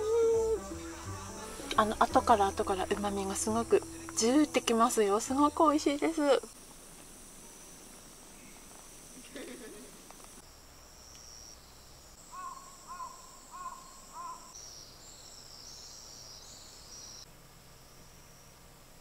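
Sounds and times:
insects chirring: 0.0s - 19.0s
bird calling: 12.3s - 14.6s.

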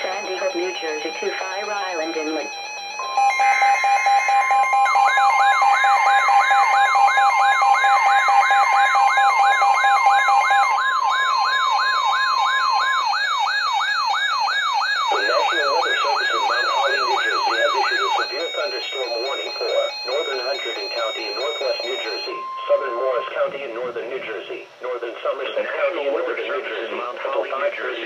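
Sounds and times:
siren-like warble: 0.0s - 23.6s
steady alert tone: 15.0s - 23.7s
second steady tone: 18.5s - 23.6s.

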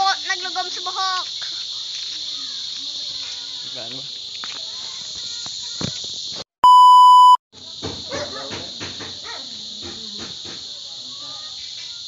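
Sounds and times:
insects chirring: 0.0s - 7.0s, 7.6s - 12.0s
electronic bleep tone: 6.6s - 7.4s.

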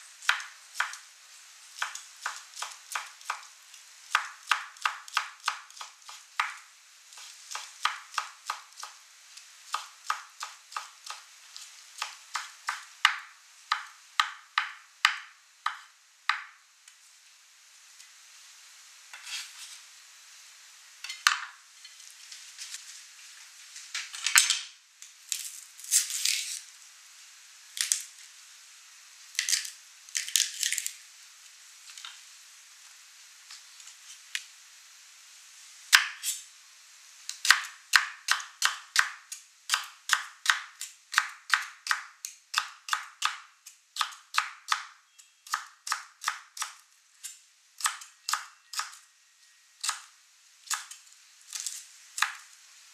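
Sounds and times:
knife chopping on cutting board: 7.2s - 9.0s, 12.0s - 16.5s.

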